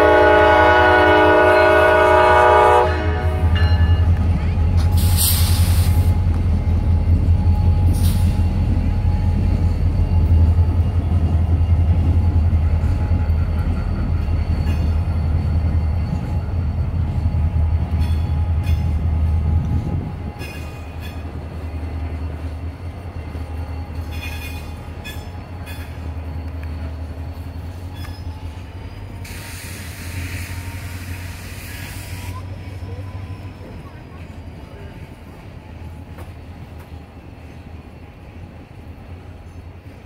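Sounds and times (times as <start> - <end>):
locomotive engine rumble: 0.0 - 40.0
high wheel squeal: 3.7 - 34.9
brief hiss: 5.0 - 6.1, 29.3 - 32.4.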